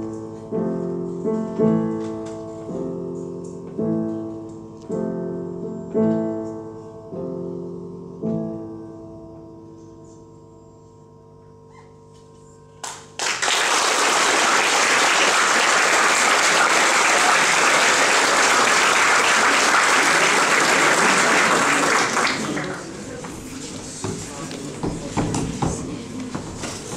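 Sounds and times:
audience applause: 12.8 - 23.2.

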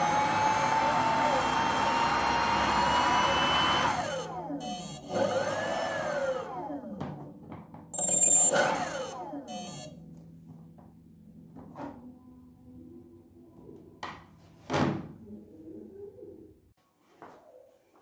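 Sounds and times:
electric motor fan whine: 0.0 - 7.0, 8.0 - 10.5.

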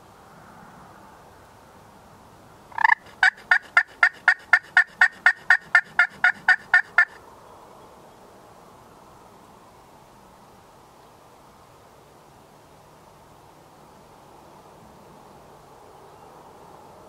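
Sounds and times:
wild turkey yelping: 2.8 - 7.2.

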